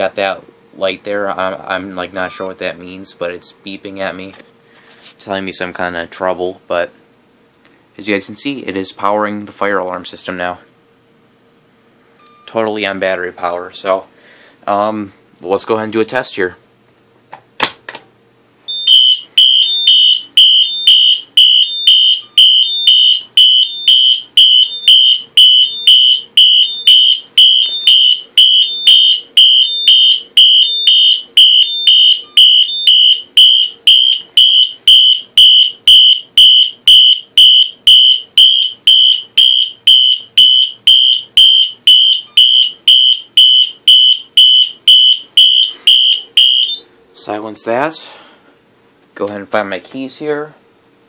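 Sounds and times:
fire alarm horn pulsing: 0:18.7 - 0:46.8.

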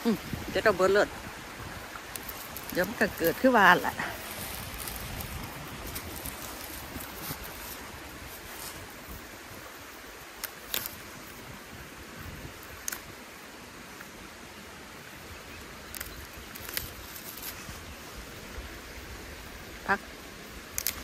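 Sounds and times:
rushing outdoor background noise: 0:00.0 - 0:21.0
fern stems snapping: 0:01.9 - 0:08.9, 0:10.2 - 0:11.4, 0:12.5 - 0:13.2, 0:15.7 - 0:17.9, 0:20.6 - 0:21.0.

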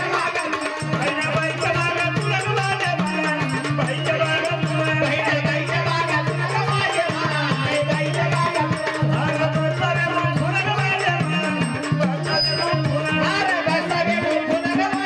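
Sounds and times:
jingling percussion: 0:00.0 - 0:15.0
voices singing: 0:00.0 - 0:15.0.

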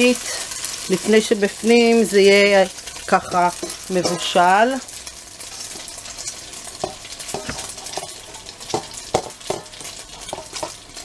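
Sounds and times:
hot oil sizzling in a pan: 0:00.0 - 0:11.0
spoon knocking a steel bowl: 0:03.6 - 0:04.4, 0:06.8 - 0:08.1, 0:08.7 - 0:10.8.

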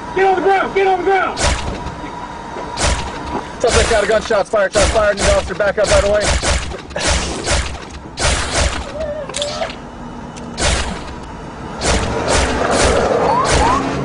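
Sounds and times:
gunshots: 0:01.4 - 0:01.8, 0:02.8 - 0:08.9, 0:10.6 - 0:11.2, 0:11.8 - 0:14.0.

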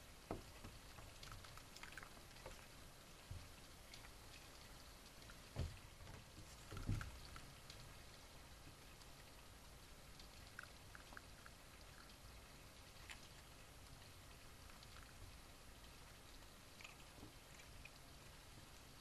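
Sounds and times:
low steady hiss: 0:00.0 - 0:19.0
dull thumps on wooden deck: 0:05.6 - 0:07.1.

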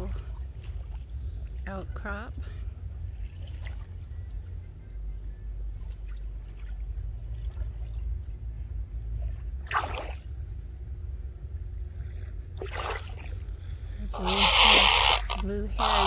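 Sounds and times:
small waves lapping: 0:00.0 - 0:16.0
water splash: 0:09.1 - 0:10.9, 0:12.1 - 0:16.0.

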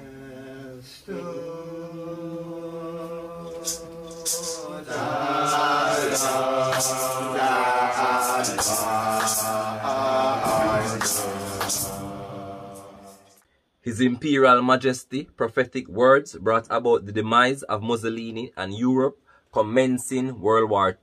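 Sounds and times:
voices chanting long sung notes: 0:00.0 - 0:13.4
sharp percussion strikes: 0:03.4 - 0:13.4.

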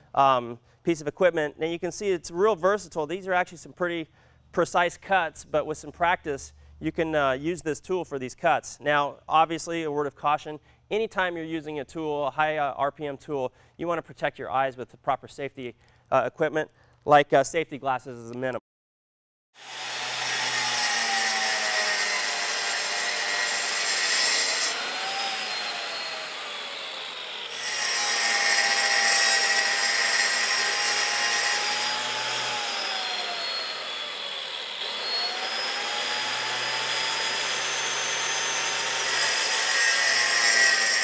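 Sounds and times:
concrete saw cutting concrete: 0:19.6 - 0:41.0.

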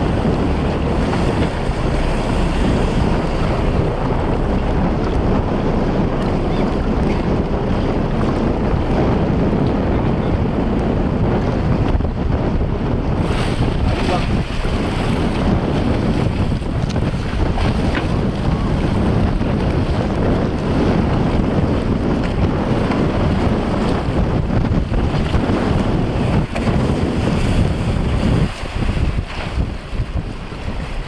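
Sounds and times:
choppy water splashing: 0:00.0 - 0:31.0
low rumble: 0:00.0 - 0:31.0
wind buffeting microphone: 0:00.0 - 0:31.0.

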